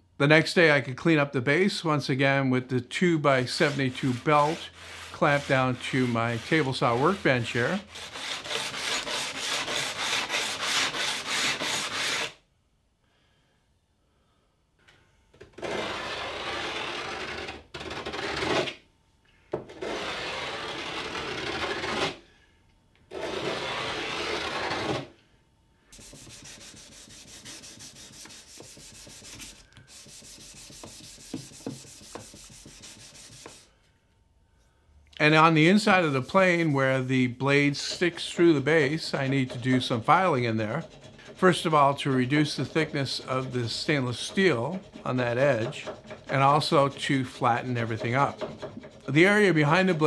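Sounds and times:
quieter finer rubbing: 3.3 - 12.2, 25.9 - 33.7, 35.5 - 50.0
plane sole rasping on sanding belt: 3.4 - 12.4, 26.0 - 33.7, 35.7 - 50.0.

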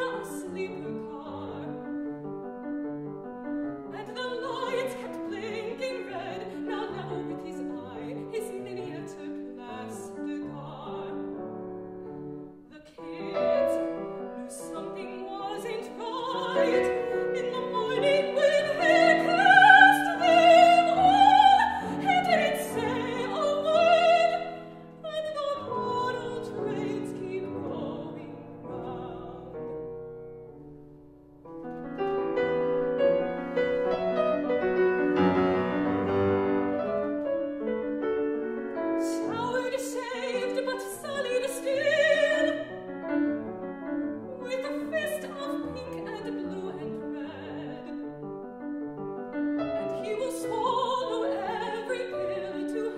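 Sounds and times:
woman singing with vibrato: 0.0 - 1.8, 3.9 - 11.3, 12.7 - 29.6, 39.0 - 42.7, 44.4 - 48.0, 49.8 - 52.9
grand piano: 0.0 - 52.9.

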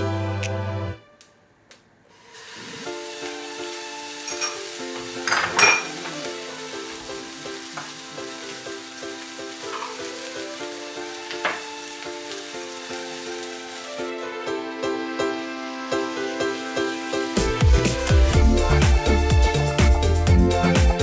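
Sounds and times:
background music: 0.0 - 1.7, 2.4 - 21.0
food sizzling in hot oil: 2.2 - 21.0.

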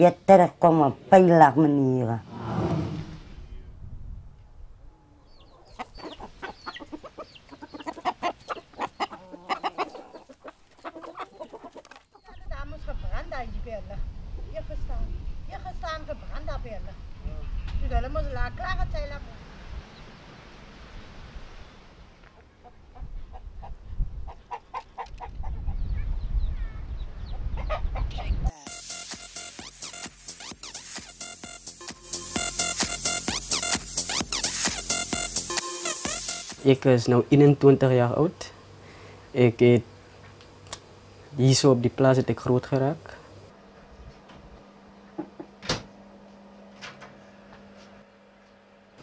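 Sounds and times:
low rumble: 2.0 - 4.9
chickens clucking: 5.2 - 12.6, 22.2 - 26.0, 27.2 - 28.6
high chirps: 28.5 - 36.7.

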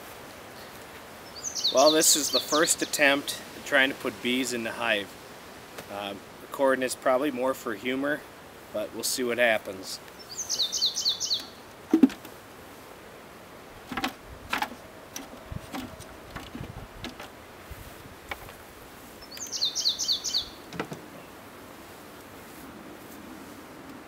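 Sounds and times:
songbird singing: 0.5 - 4.0, 9.7 - 12.3, 19.0 - 21.5
plastic hive frames clattering: 13.8 - 17.4, 20.6 - 21.1.

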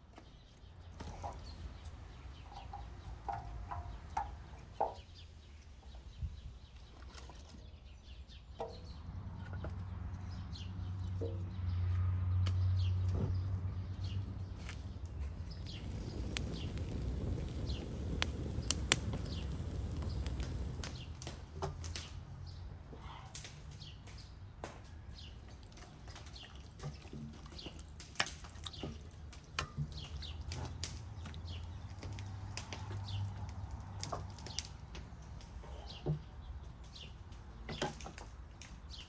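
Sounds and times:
firewood knocking on metal: 2.5 - 5.2
fire low rumble: 13.0 - 22.6, 27.9 - 35.7
fire crackling and popping: 14.2 - 22.2, 27.6 - 35.6.

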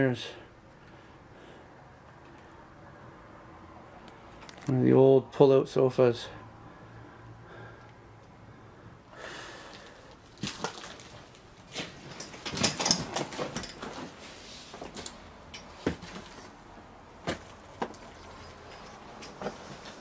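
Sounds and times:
footsteps crunching on debris: 9.7 - 15.2, 17.2 - 20.0.

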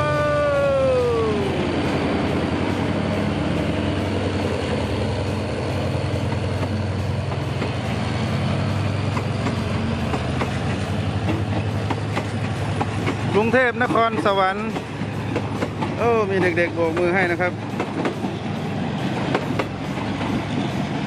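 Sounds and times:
locomotive engine drone: 0.0 - 21.0
wheels clicking over rail joints: 8.7 - 21.0.

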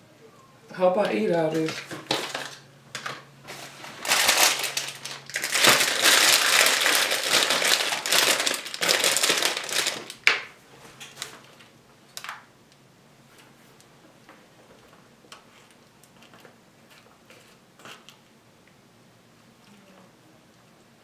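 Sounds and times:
loud crinkling and crackling: 1.5 - 10.3.

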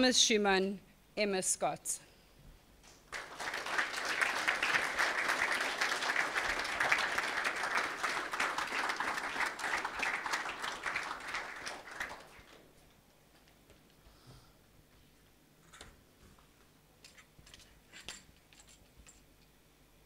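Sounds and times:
audience clapping: 2.9 - 12.8.

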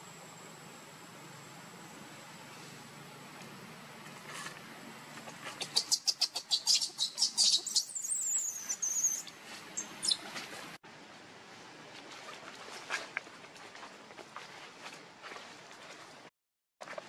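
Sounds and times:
baby monkey screaming: 5.6 - 10.2.

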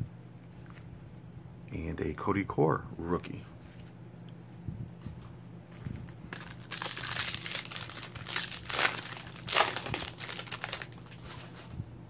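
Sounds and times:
foil wrapper crinkling and tearing: 5.7 - 11.7.

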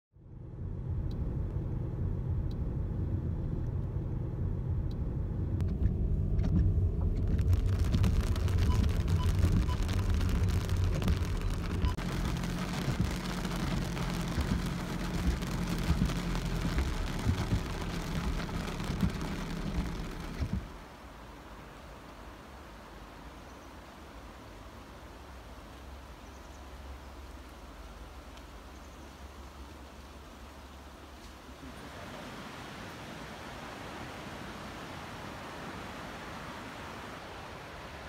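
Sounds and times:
car engine low hum: 0.1 - 38.0
road noise rushing: 0.4 - 23.3.

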